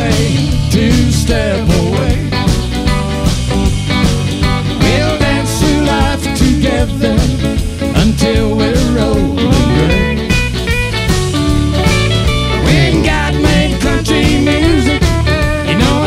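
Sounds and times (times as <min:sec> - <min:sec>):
drums: 0:00.0 - 0:16.0
electric guitars: 0:00.0 - 0:16.0.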